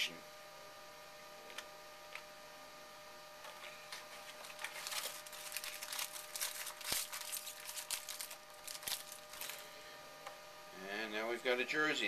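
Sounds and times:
foil pack rustling and tearing: 0:04.0 - 0:09.7.

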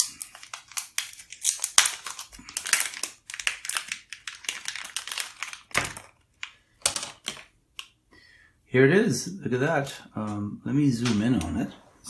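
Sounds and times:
package wrapping crinkling: 0:00.0 - 0:07.9.

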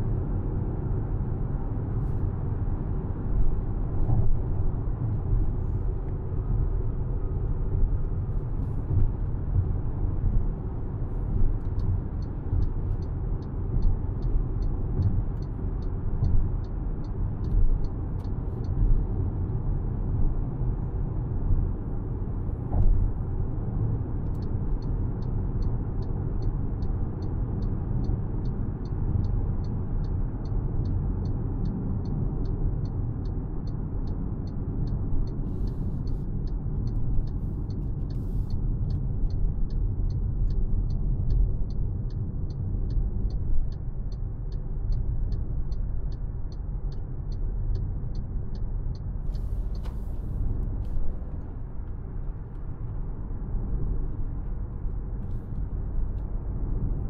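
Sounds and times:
car engine and road noise: 0:00.0 - 0:57.0
light ticking: 0:24.2 - 0:53.0.

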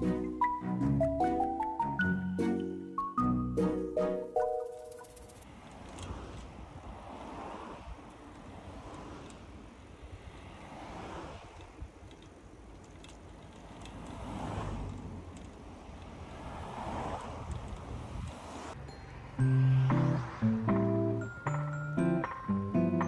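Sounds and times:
slow rushes of noise: 0:05.1 - 0:12.0, 0:13.7 - 0:21.5
wind rumbling on microphone: 0:05.2 - 0:18.8.

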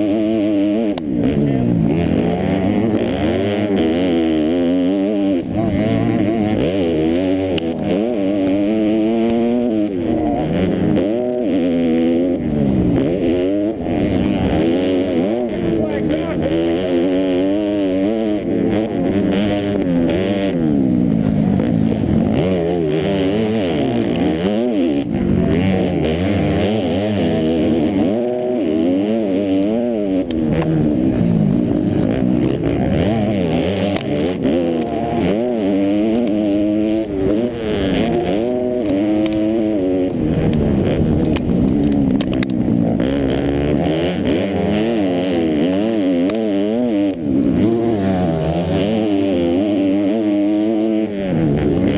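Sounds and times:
motocross bike engine revving: 0:00.0 - 0:51.9.

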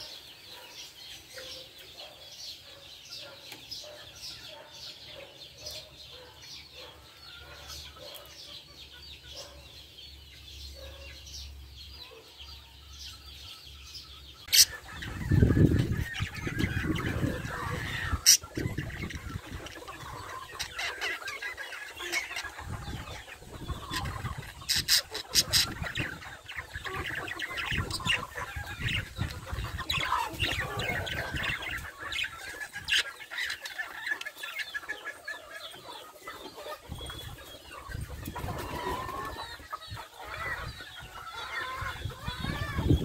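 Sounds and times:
budgerigars chattering: 0:12.9 - 0:43.0.

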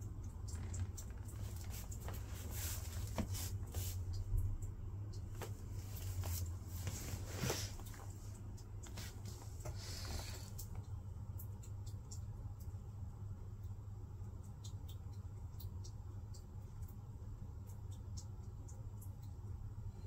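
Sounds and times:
steady low hum: 0:00.0 - 0:20.0
flip-flops tapping and scuffing: 0:01.4 - 0:04.0, 0:05.3 - 0:08.1.

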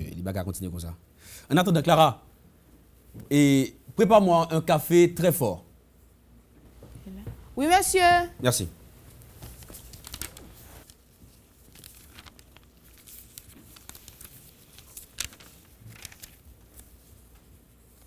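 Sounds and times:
paper rustling: 0:09.1 - 0:18.0.

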